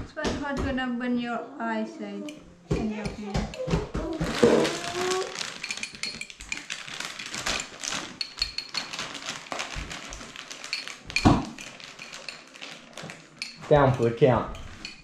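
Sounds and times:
fork clinking against glass jar: 4.4s - 15.0s.

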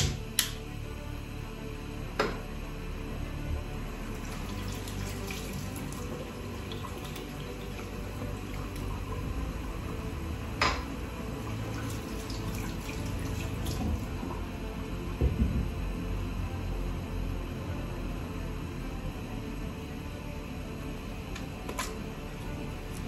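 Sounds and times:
tap water running into sink: 4.2s - 9.2s, 11.5s - 14.4s.

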